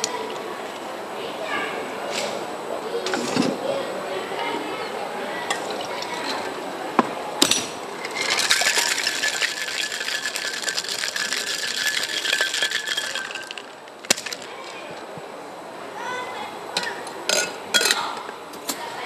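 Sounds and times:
ice rattling in cocktail shaker: 8.0s - 14.9s.

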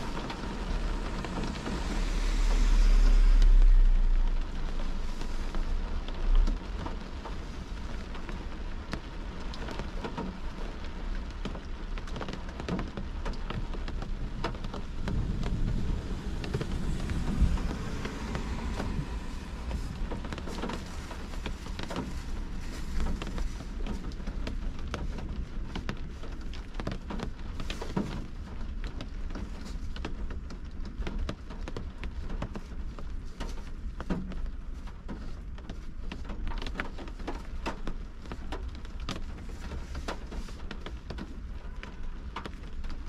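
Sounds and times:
steady low rumble: 0.0s - 32.2s
rain on car windshield and roof: 0.0s - 43.0s.

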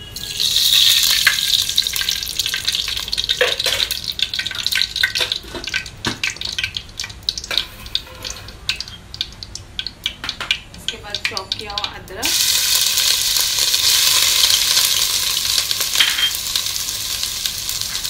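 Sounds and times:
fat sizzling and crackling: 0.0s - 18.0s
hot fat hissing into pot: 12.3s - 18.0s.

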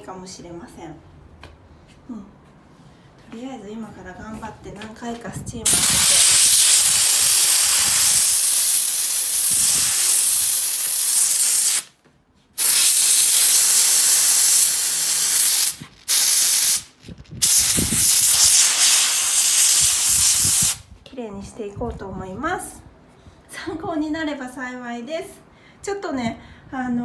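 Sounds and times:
steam cleaner hissing: 5.7s - 11.9s, 12.6s - 20.8s.

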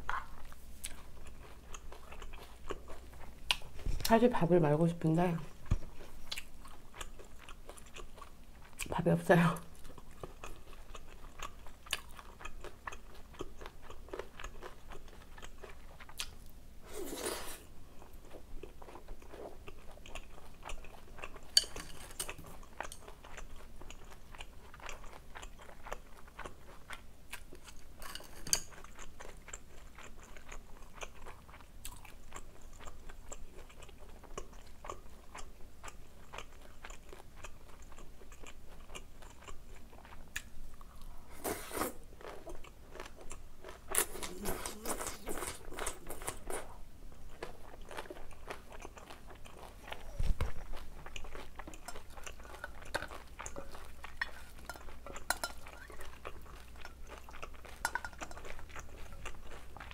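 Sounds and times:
wet chewing of noodles: 0.0s - 4.1s, 5.4s - 8.9s, 9.7s - 59.9s
crunching of kimchi: 9.6s - 59.9s
metal chopsticks clinking on glass: 54.6s - 55.8s.

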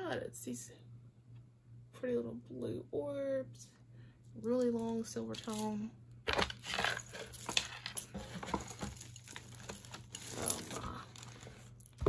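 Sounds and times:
beaded necklace clicking and rattling: 4.6s - 5.8s.

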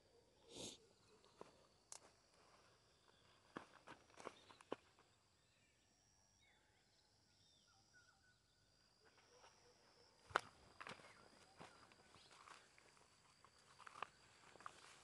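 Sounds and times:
faint bird chirps: 0.0s - 1.7s, 2.8s - 13.1s.

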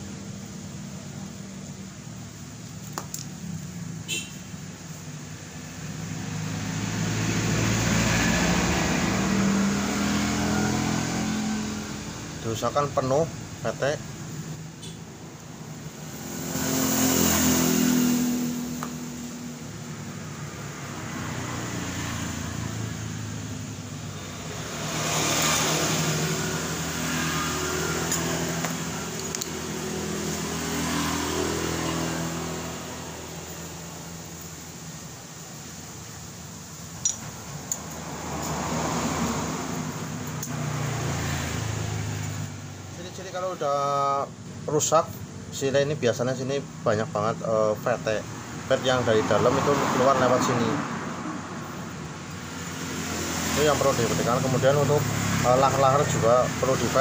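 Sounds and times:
engine running and revving: 5.9s - 12.4s, 15.9s - 34.8s, 37.7s - 42.6s, 49.1s - 57.0s.

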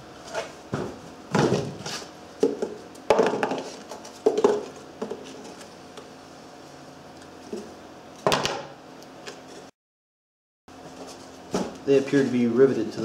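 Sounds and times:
knocks scrapes and rustles: 0.2s - 2.8s.

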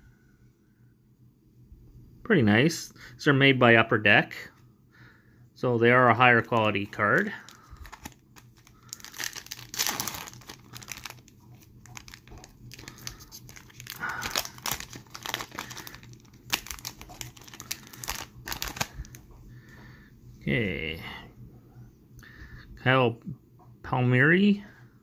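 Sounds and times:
foil wrapper tearing and crinkling: 6.6s - 19.2s.

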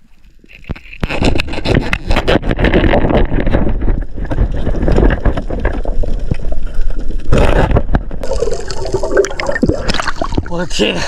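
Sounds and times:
underwater low rumble: 2.4s - 10.5s.

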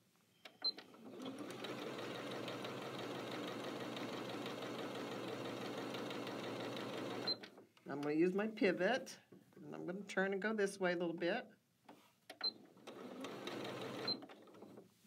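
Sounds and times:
sewing machine beep: 0.3s - 2.3s, 7.0s - 7.4s, 12.4s - 12.6s, 13.8s - 14.3s
sewing machine stitching: 0.7s - 7.4s, 12.4s - 14.8s.

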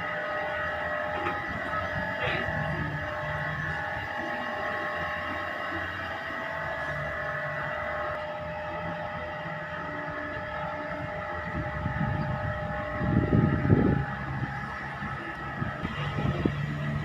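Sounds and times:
machine whine: 0.0s - 17.0s
wind buffeting microphone: 0.3s - 5.2s, 10.3s - 17.0s.

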